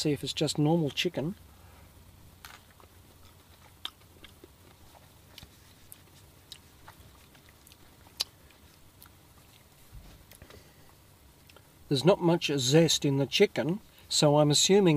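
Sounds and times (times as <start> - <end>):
person chewing food: 2.4 - 11.7.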